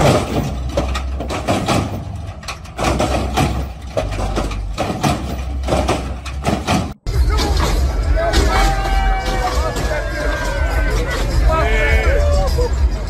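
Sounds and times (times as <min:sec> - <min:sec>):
sharp metal clank: 0:00.0 - 0:10.2.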